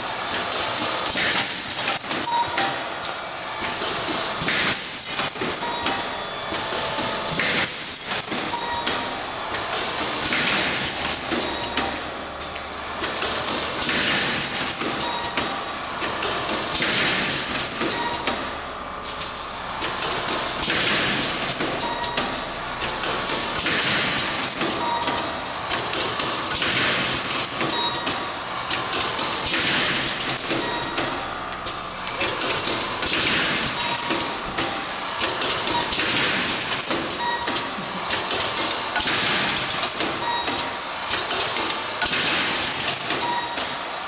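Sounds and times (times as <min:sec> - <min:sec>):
machine mechanical clatter: 0:00.2 - 0:44.0
pneumatic hissing surge: 0:16.7 - 0:17.9, 0:29.4 - 0:31.0, 0:31.8 - 0:40.3.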